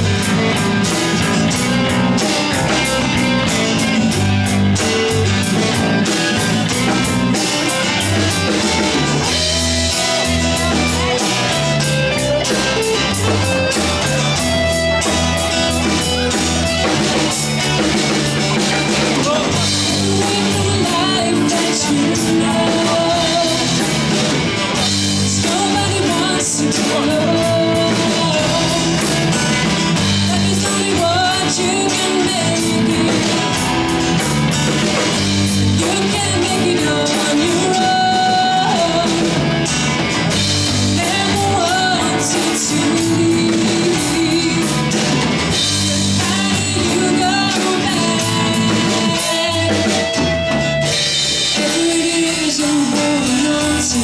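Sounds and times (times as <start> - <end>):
drums: 0.0 - 54.0
electric guitars: 0.0 - 54.0
woman singing: 19.0 - 24.2, 25.1 - 29.4, 30.2 - 33.8, 35.7 - 39.5, 40.8 - 45.2, 45.8 - 50.5, 51.5 - 54.0.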